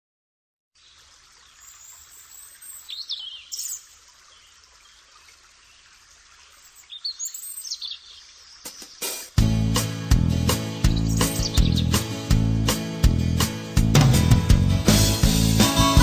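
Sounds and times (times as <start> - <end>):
songbirds chirping: 0.8 - 12.8.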